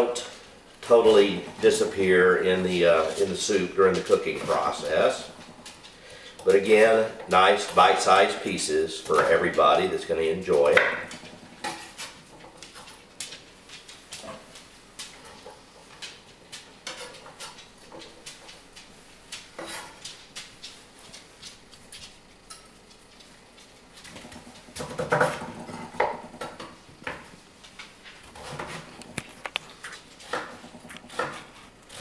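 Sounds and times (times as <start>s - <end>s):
knife chopping on wooden board: 30.2s - 32.0s.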